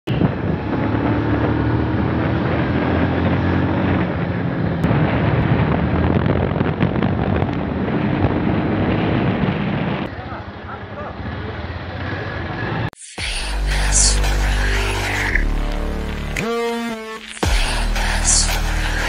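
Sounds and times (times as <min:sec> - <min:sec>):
wind noise on microphone: 0:00.1 - 0:10.1.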